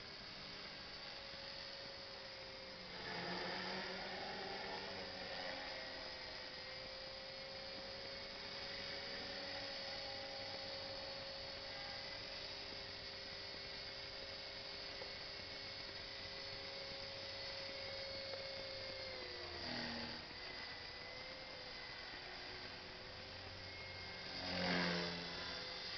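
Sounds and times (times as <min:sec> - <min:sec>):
rc helicopter motor whine: 0:00.0 - 0:25.9.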